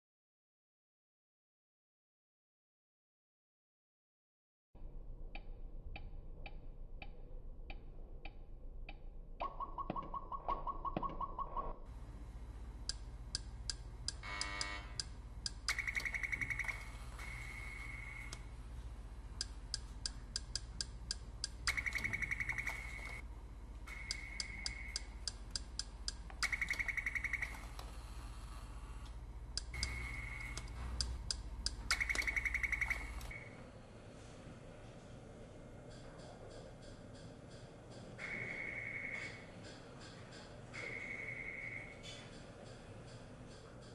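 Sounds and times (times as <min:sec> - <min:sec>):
low electrical hum: 0:11.8 - 0:43.9
lower steady tone: 0:11.9 - 0:33.7.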